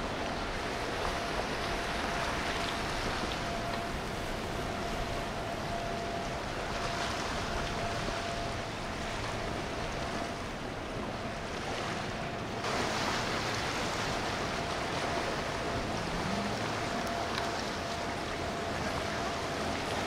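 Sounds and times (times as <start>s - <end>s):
motorboat engine: 0.0s - 20.0s
water rushing: 0.0s - 20.0s.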